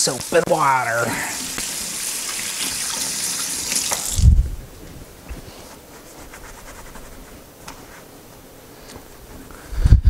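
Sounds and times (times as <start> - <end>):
running water: 0.0 - 4.8.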